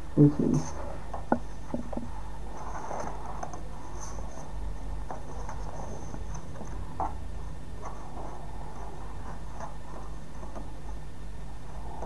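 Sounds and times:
steady low hum: 0.0s - 12.0s
paper rustling and tapping: 9.5s - 10.9s.

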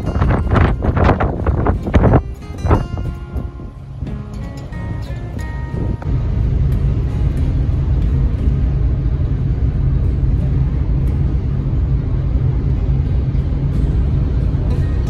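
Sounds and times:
ferry engine rumble: 0.0s - 15.0s
wind buffeting microphone: 0.0s - 15.0s.

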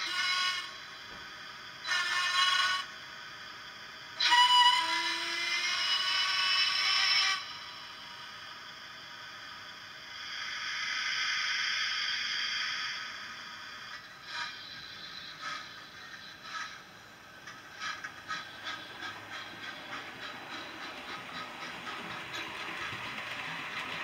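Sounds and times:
steam whistle blast: 0.0s - 1.0s, 1.8s - 3.0s, 4.2s - 8.2s
steam hiss: 0.0s - 24.0s
steam locomotive exhaust beats: 0.0s - 24.0s.

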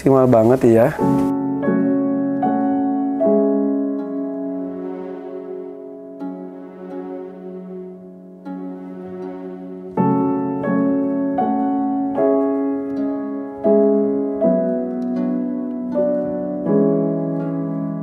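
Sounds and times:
slow piano music: 0.0s - 18.0s.

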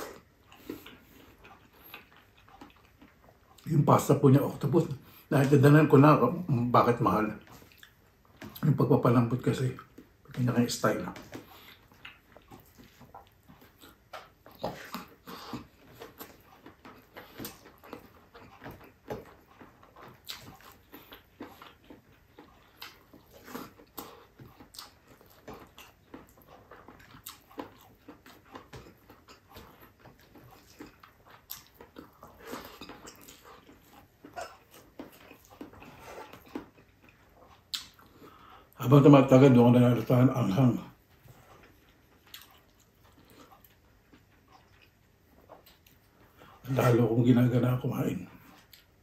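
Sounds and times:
man chewing and lip-smacking: 0.0s - 47.0s, 48.0s - 49.0s.

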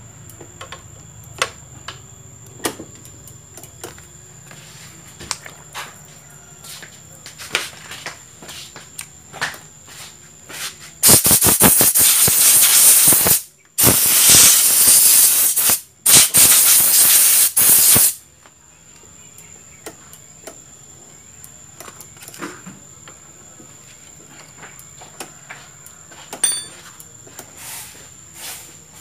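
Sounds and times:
aerosol spray can hissing: 10.6s - 18.2s.

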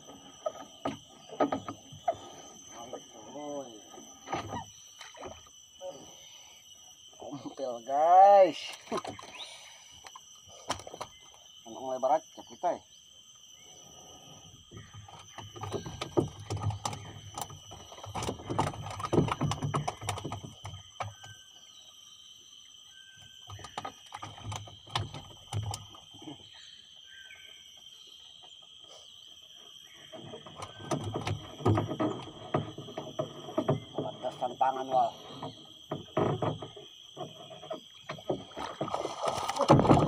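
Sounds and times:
high-pitched insect drone: 0.0s - 40.0s
fishing gear knocks and rustles: 15.0s - 21.4s.

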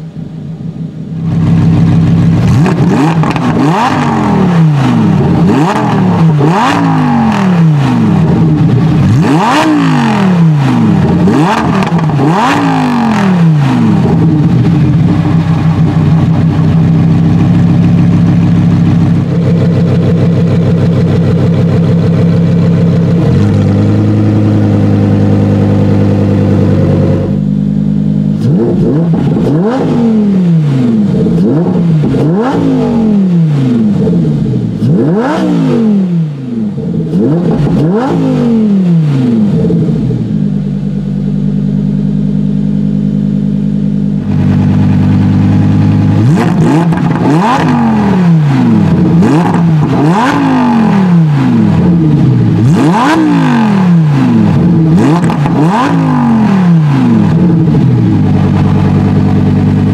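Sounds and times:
car engine idling: 0.0s - 59.9s
car engine revving: 0.0s - 59.9s.

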